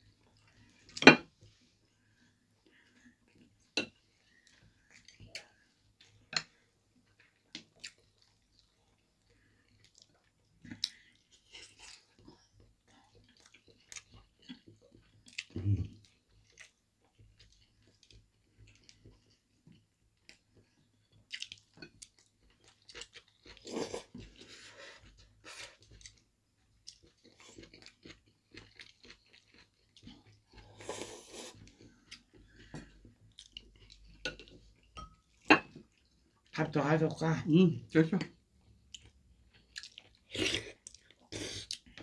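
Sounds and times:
people chewing food: 0:00.0 - 0:36.6, 0:38.0 - 0:42.0.

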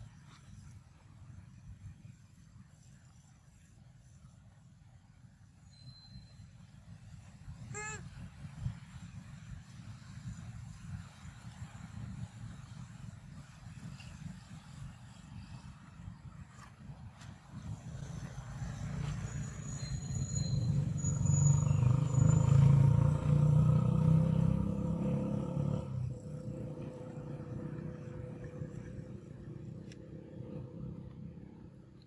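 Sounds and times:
vehicle engine passing by: 0:17.6 - 0:32.0.

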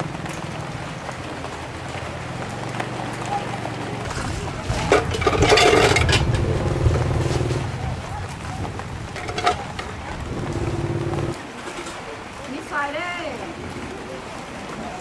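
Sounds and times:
market chatter: 0:00.0 - 0:15.0
vehicle engine running: 0:02.7 - 0:11.4.

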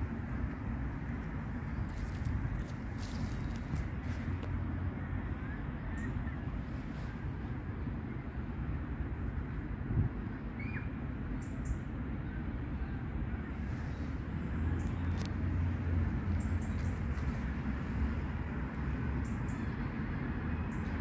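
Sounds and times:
distant road traffic: 0:00.0 - 0:21.0
wind: 0:00.0 - 0:21.0.

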